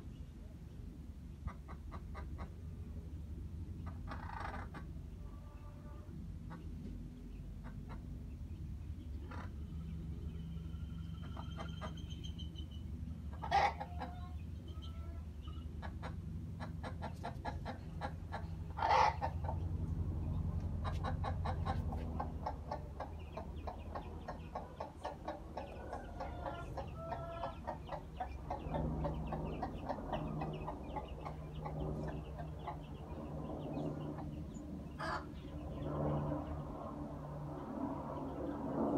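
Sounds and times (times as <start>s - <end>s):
low hum: 0.0s - 13.4s, 17.8s - 38.9s
hen clucking: 1.4s - 2.7s, 3.8s - 8.2s, 9.1s - 9.8s, 11.1s - 12.6s, 13.3s - 19.7s, 20.6s - 33.0s, 35.0s - 35.3s
chicks calling: 3.7s - 36.6s.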